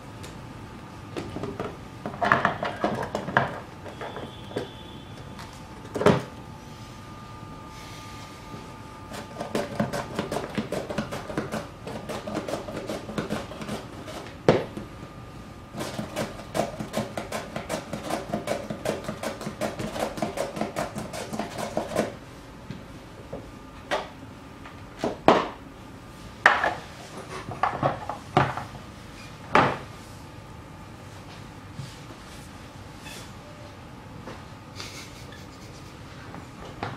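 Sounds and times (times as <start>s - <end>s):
vegetable scraping on slicer: 9.1s - 14.3s, 15.8s - 22.2s.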